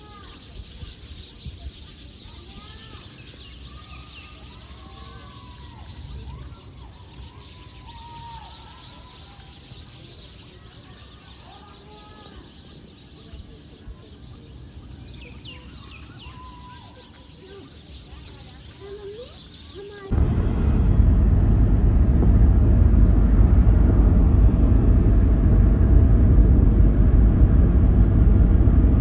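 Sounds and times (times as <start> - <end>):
low rumble: 20.1 - 29.0.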